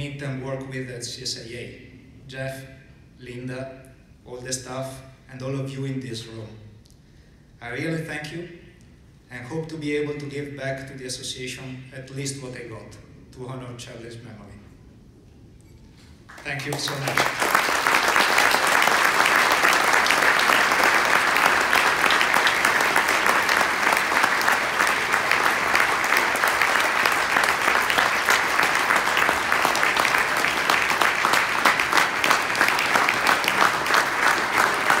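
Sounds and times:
audience applauding: 16.3s - 35.0s.

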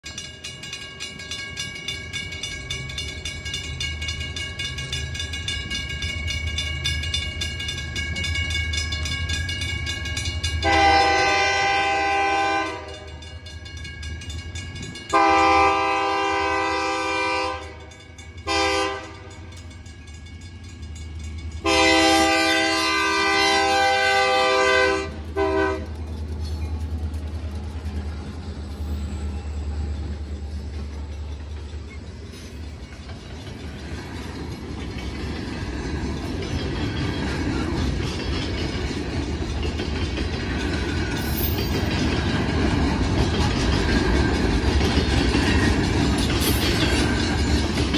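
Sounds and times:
crossing signal bell ringing: 0.0s - 42.7s, 43.3s - 47.9s
locomotives rumbling past: 0.5s - 47.9s
locomotive air horn blasts: 10.6s - 13.2s, 15.1s - 17.9s, 18.5s - 19.4s, 21.6s - 25.9s.

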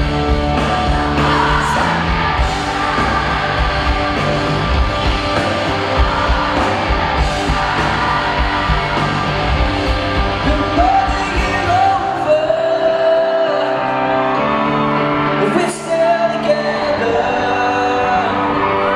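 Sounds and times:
drums pounding: 0.0s - 12.0s
live pop-rock band: 0.0s - 18.9s
person singing lead vocal: 0.0s - 18.9s.

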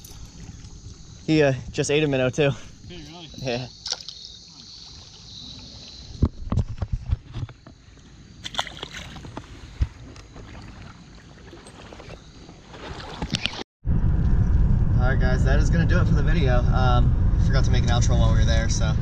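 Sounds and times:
steady outdoor hiss: 0.0s - 11.6s
car road noise rumble: 13.9s - 19.0s.

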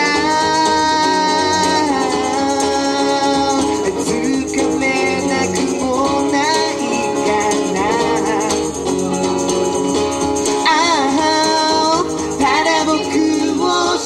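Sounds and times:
person singing long notes: 0.0s - 8.7s
guitar: 0.0s - 14.0s.

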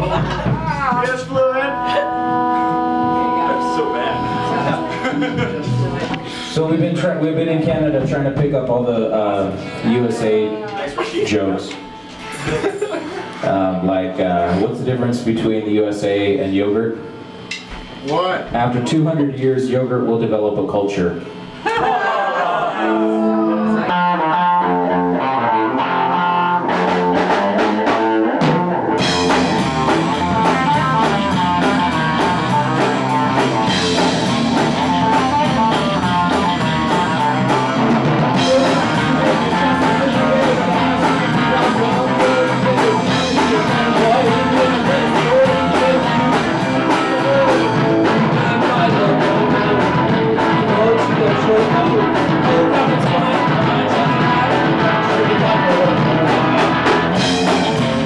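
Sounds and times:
electric guitar intro: 0.0s - 10.7s, 22.8s - 58.0s
bass guitar: 0.0s - 12.6s, 22.7s - 58.0s
live rock band playing: 0.0s - 15.6s, 22.8s - 58.0s
drums: 0.0s - 22.3s, 23.1s - 58.0s.

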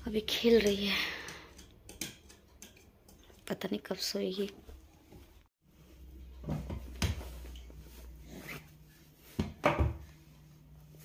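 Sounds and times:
clothes being pulled out: 6.5s - 9.4s.

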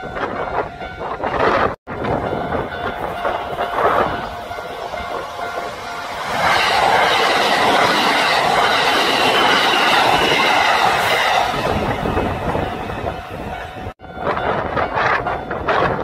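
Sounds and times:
train wheels rumbling on track: 0.0s - 16.0s.

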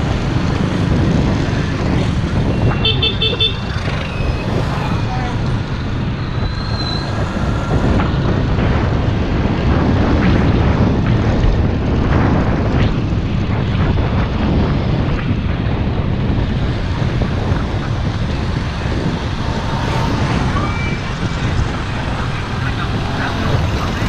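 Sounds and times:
low vehicle rumble: 0.0s - 24.0s
wind rush on microphone: 0.0s - 24.0s.

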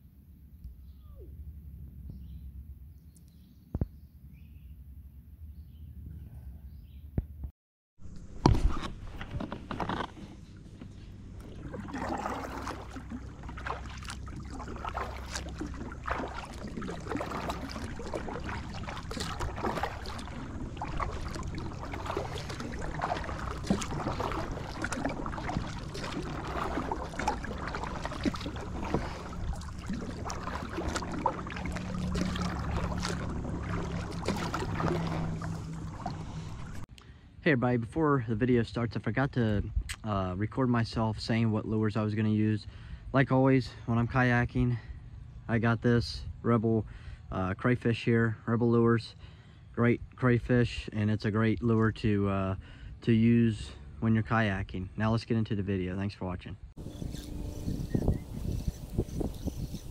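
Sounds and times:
water lapping against kayak hull: 8.0s - 36.9s, 56.7s - 59.9s
low steady hum: 8.0s - 41.6s, 56.7s - 59.9s.

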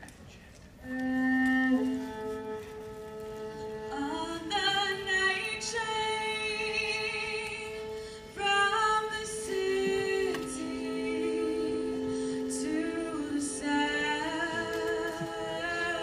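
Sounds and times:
violin and viola sustained notes: 0.8s - 16.0s
woman singing with vibrato: 3.8s - 16.0s.

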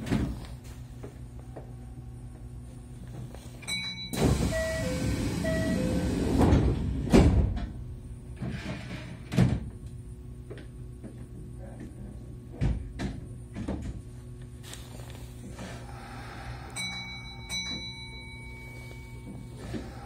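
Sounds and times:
train low hum: 0.0s - 20.0s
sliding doors thumping shut: 4.1s - 7.8s, 8.4s - 9.8s
hissing air rush: 14.6s - 17.4s, 19.5s - 20.0s.

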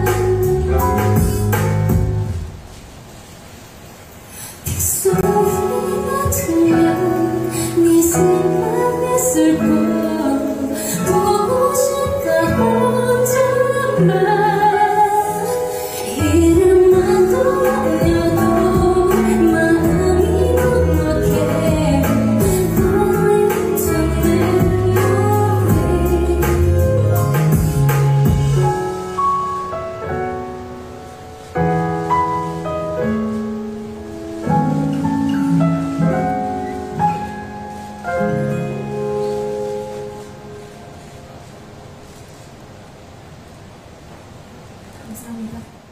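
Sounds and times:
deep bass line: 0.0s - 2.5s, 16.6s - 23.2s, 24.0s - 28.7s
instrumental accompaniment: 0.0s - 2.8s, 5.1s - 42.1s
woman singing into microphone: 4.6s - 27.7s.

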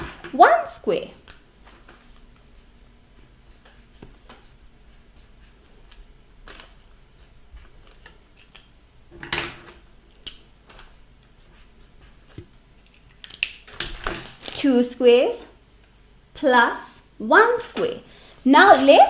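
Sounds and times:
pencil strokes on paper: 2.0s - 6.0s
paper rustle: 12.8s - 14.6s.

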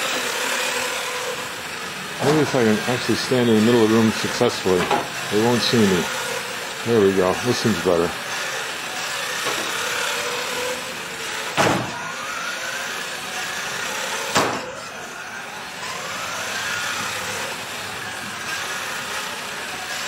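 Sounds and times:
rc car motor whining: 0.0s - 20.0s
sharp knocks: 11.6s - 11.9s.

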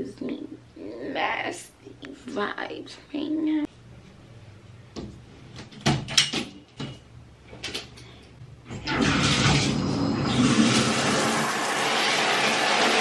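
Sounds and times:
shower water rushing: 8.7s - 13.0s.

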